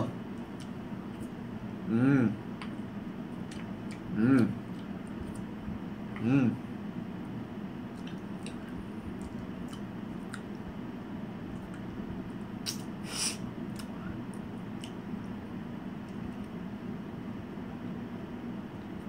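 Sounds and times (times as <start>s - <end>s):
steady low hum: 0.0s - 19.0s
short hiss: 13.0s - 13.4s.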